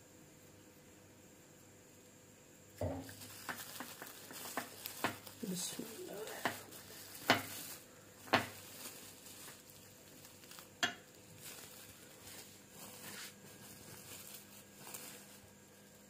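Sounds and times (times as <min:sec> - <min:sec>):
plastic sheet crinkling: 0:02.8 - 0:16.0.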